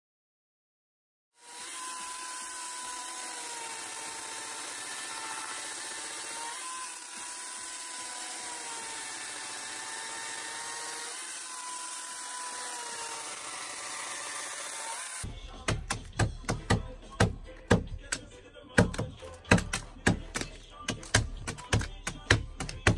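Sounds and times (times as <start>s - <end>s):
chainsaw cutting into log: 1.4s - 15.3s.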